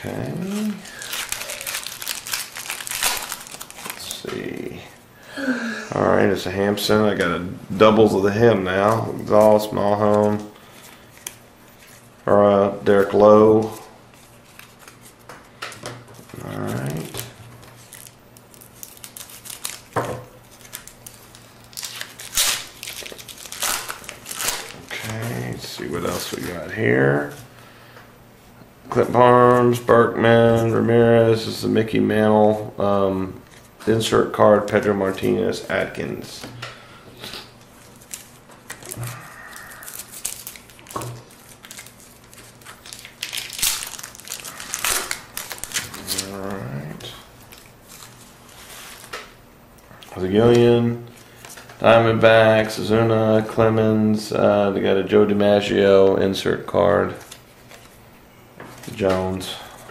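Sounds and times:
cards rustling: 0:00.0 - 0:04.8, 0:08.3 - 0:12.1, 0:12.8 - 0:15.3, 0:16.2 - 0:26.8, 0:37.2 - 0:49.2, 0:57.0 - 0:58.0
wrapper tearing and crinkling: 0:00.5 - 0:04.3, 0:16.4 - 0:25.4, 0:37.7 - 0:49.1.

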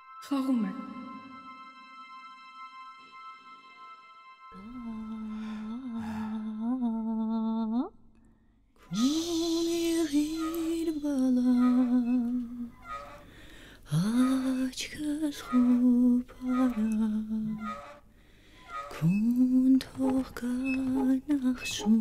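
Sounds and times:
woman humming a lullaby: 0:04.6 - 0:07.9, 0:08.9 - 0:12.8, 0:13.9 - 0:17.7, 0:18.9 - 0:22.0.

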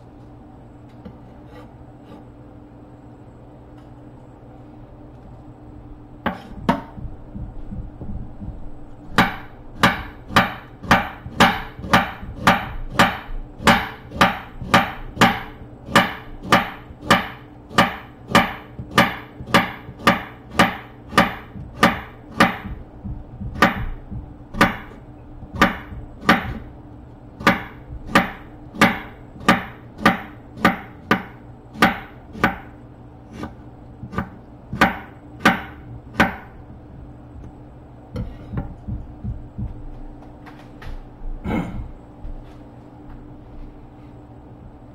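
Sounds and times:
faint steady hum: 0:00.0 - 0:44.9
knife chopping on wooden board: 0:06.2 - 0:26.7, 0:27.4 - 0:32.7, 0:33.3 - 0:36.6.

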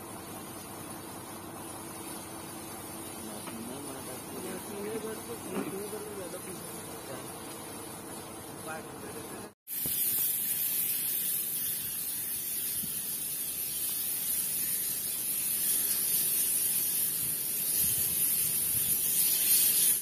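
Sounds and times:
hiss of flames: 0:09.7 - 0:20.0.

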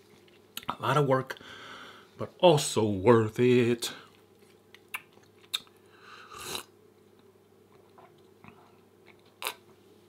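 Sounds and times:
biting and chewing food: 0:04.1 - 0:05.8.

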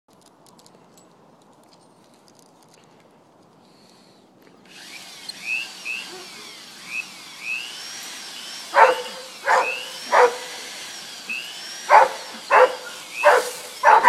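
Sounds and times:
small motor whirring and squeaking: 0:04.6 - 0:14.0
dog barking: 0:06.0 - 0:06.4, 0:08.7 - 0:10.5, 0:11.9 - 0:14.0.

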